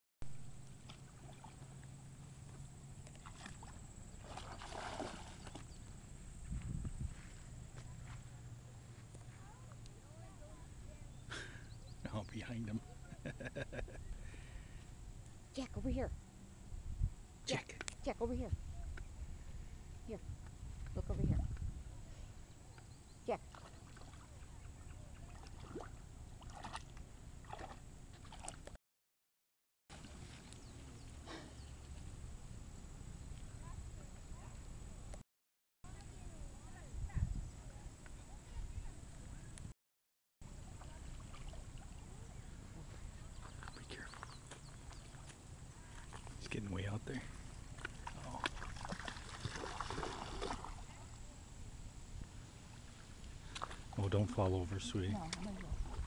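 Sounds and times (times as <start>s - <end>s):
dog splashing in shallow water: 0.7s - 2.3s, 3.0s - 5.9s, 23.5s - 28.6s, 40.7s - 42.2s, 47.3s - 51.2s, 53.4s - 56.0s.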